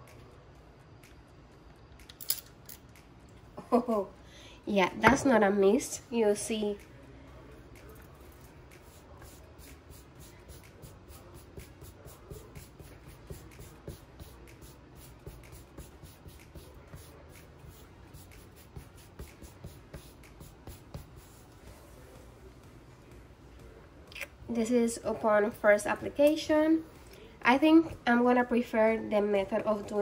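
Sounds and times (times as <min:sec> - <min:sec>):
hand rubbing cloth: 0:08.2 - 0:22.4.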